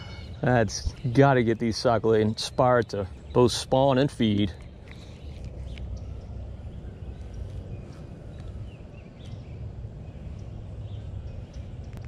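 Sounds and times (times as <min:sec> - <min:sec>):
wind rumbling on microphone: 0:04.2 - 0:12.0.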